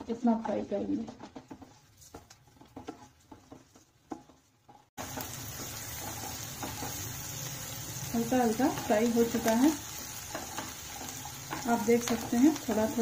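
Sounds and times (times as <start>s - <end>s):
onion sizzling in pan: 0.1s - 13.0s.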